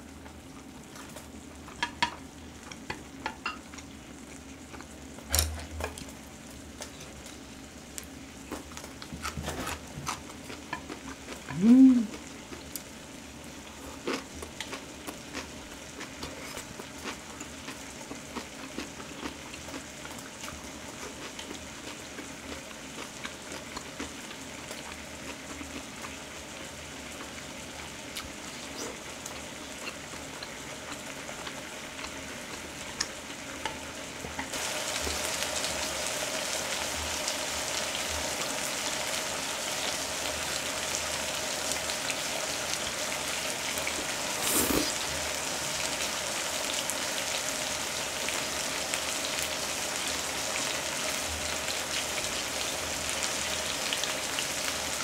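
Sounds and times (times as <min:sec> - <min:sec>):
meat sizzling on grill pan: 0:20.6 - 0:55.0.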